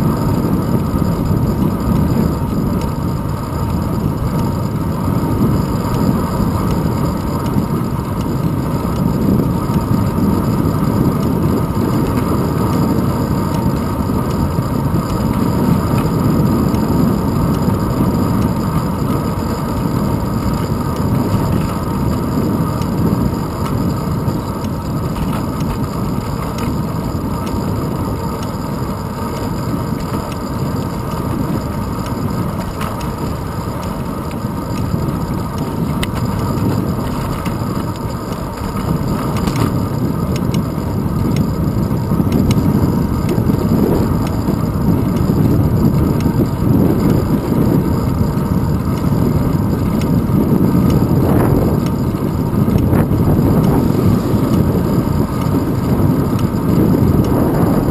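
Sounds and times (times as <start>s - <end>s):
wind rush and road rumble: 0.0s - 57.9s.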